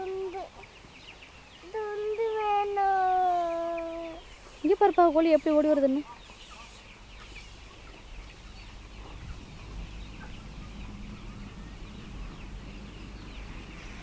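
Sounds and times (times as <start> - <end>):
chickens clucking and cheeping: 0.0 - 14.0
low rumble: 8.2 - 14.0.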